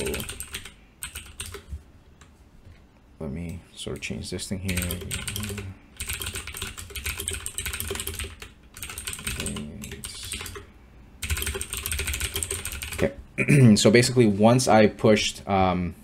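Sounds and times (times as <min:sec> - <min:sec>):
fast typing on keyboard: 0:00.0 - 0:01.7, 0:04.7 - 0:13.1.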